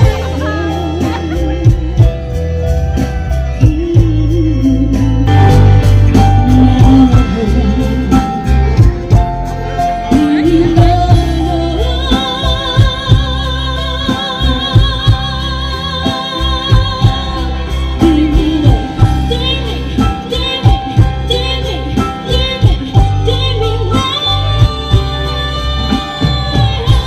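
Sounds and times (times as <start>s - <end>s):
person singing: 0.0s - 2.5s
electric guitars: 0.0s - 27.0s
keyboards: 0.0s - 27.0s
live band music: 0.0s - 27.0s.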